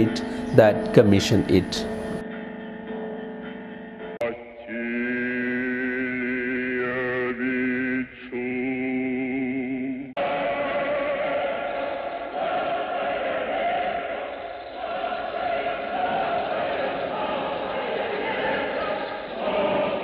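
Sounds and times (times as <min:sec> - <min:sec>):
man chanting held notes: 0:00.0 - 0:01.9
choir chanting: 0:00.0 - 0:20.0.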